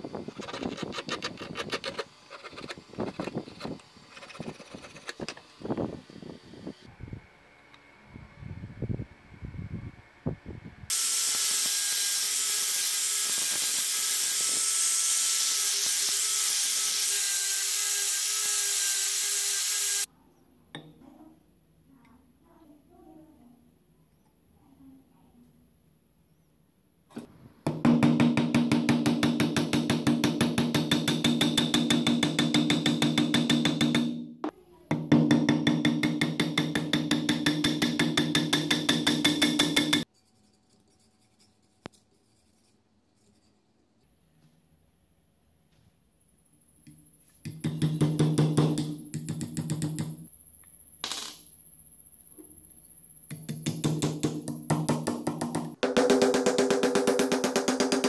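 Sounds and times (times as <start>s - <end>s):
hammer tapping on metal: 27.7s - 34.3s, 34.9s - 40.1s, 47.5s - 50.2s, 53.3s - 58.0s.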